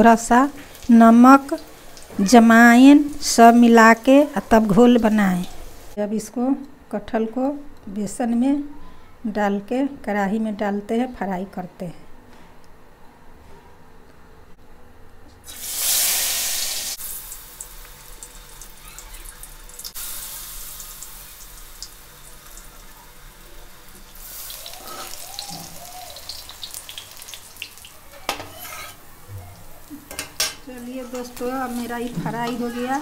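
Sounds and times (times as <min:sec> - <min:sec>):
food deep-frying in hot oil: 0:00.0 - 0:06.0, 0:15.4 - 0:28.8.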